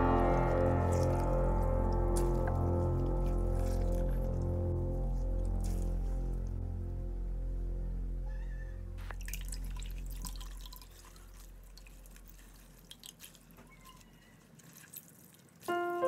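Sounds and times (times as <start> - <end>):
background music: 0.0 - 10.4, 15.7 - 16.0
water dripping into a metal bowl: 9.1 - 16.0.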